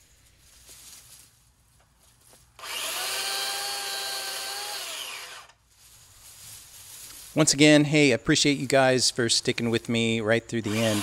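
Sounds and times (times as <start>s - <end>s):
electric chainsaw cutting branch: 2.6s - 5.6s, 10.6s - 11.0s.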